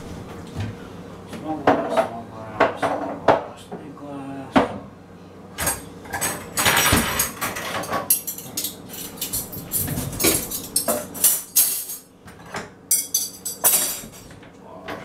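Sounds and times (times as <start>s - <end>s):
dishes and cutlery clattering: 5.6s - 14.4s
cutlery drawer opening: 6.6s - 10.7s.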